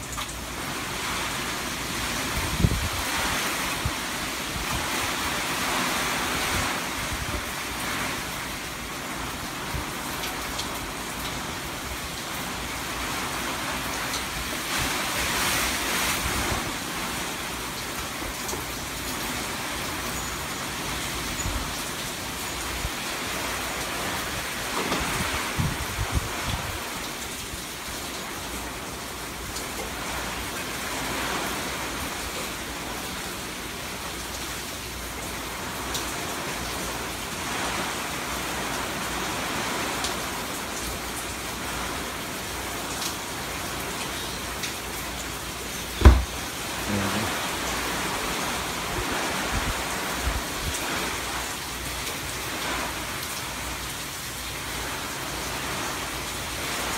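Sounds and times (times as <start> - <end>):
heavy rain hissing: 0.0 - 56.9
low thump: 46.0 - 46.4.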